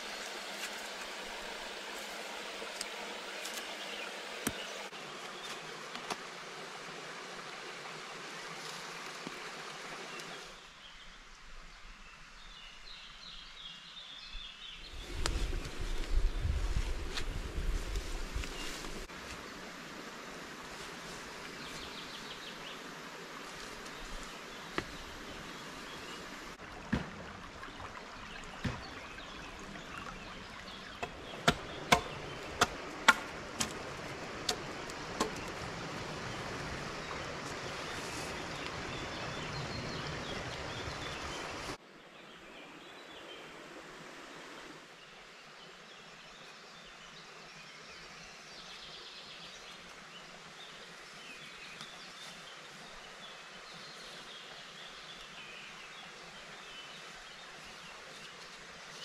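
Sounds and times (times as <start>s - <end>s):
stream water flowing: 0.0s - 13.7s, 14.9s - 59.0s
woodland ambience: 0.0s - 59.0s
faint birdsong: 27.5s - 59.0s.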